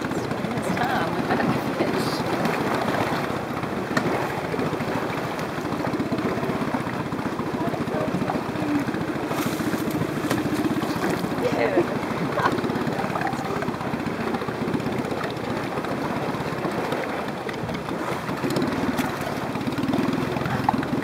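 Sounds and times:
boat engine idling: 0.0 - 21.0.

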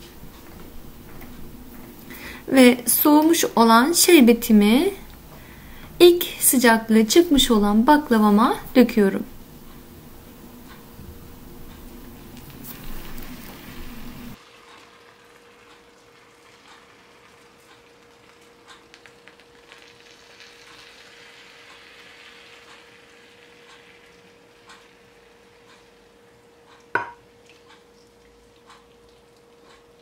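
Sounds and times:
pastry crackling and sizzling: 0.0 - 29.9
small ticks: 15.6 - 16.0, 16.6 - 16.9, 17.5 - 20.9, 21.6 - 21.8, 23.6 - 26.0, 27.5 - 30.0.

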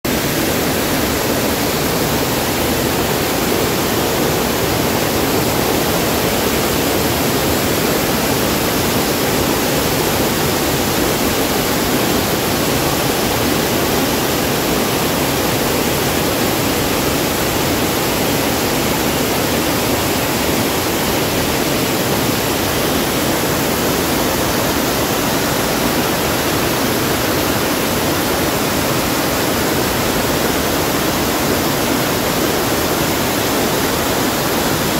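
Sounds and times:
waterfall rushing: 0.1 - 34.9.

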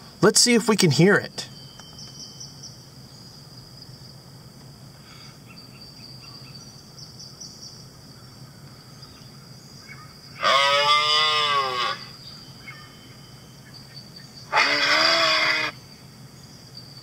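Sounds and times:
crickets chirping: 0.0 - 17.0
moose call: 9.9 - 13.1, 14.4 - 15.8.

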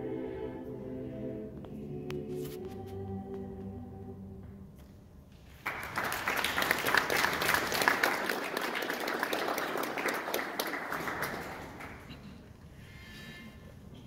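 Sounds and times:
audience applause: 5.6 - 12.2.

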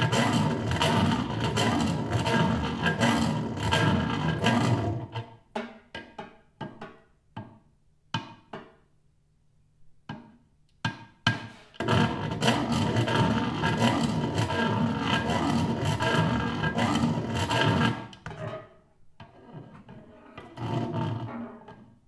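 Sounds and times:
scratchy snare drum texture: 0.0 - 5.2, 11.3 - 18.1.

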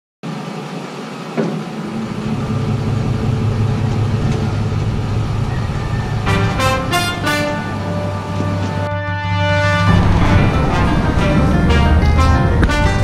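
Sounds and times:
pickup truck engine idling: 1.6 - 8.9, 9.8 - 13.0
music: 5.6 - 13.0.

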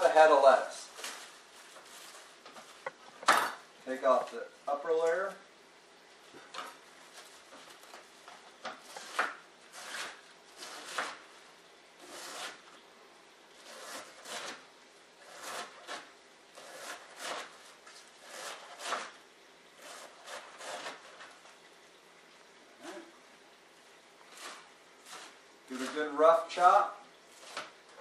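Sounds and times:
knife slicing lettuce on board: 8.6 - 11.2, 12.0 - 12.7, 13.6 - 19.2, 19.8 - 21.4, 24.3 - 26.2, 27.3 - 28.0.

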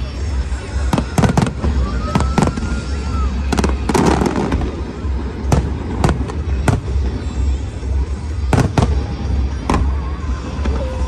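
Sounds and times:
fireworks bangs: 0.4 - 10.8.

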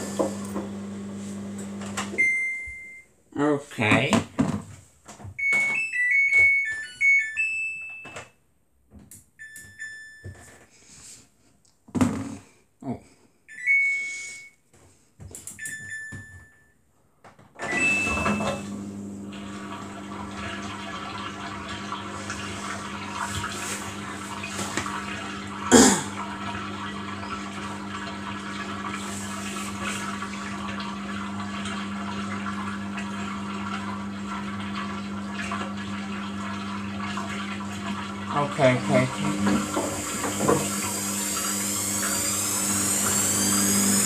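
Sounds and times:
washing machine hum: 0.0 - 3.1, 17.6 - 44.0.

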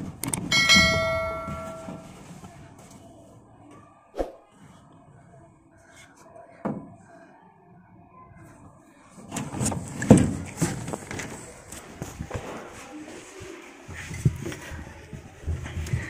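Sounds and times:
handling knocks: 0.3 - 2.2.

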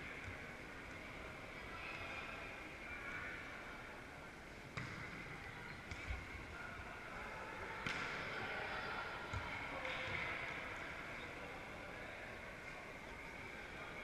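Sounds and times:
murmur of spectators: 0.0 - 14.0
volleyball hits: 4.7 - 5.2, 7.8 - 8.4.

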